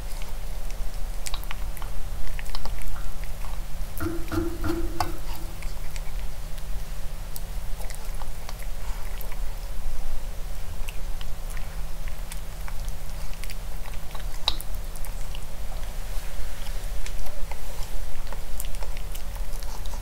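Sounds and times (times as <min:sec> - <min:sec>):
puppy crunching food: 0:00.0 - 0:04.0, 0:04.8 - 0:16.0, 0:16.6 - 0:20.0
steady low hum: 0:01.7 - 0:07.9.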